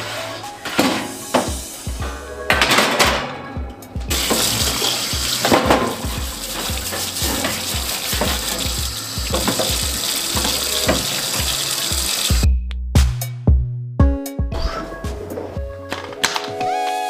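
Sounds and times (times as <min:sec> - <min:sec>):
dish brush scrubbing metal: 0:04.1 - 0:12.4
tap water splashing into sink: 0:04.1 - 0:12.4.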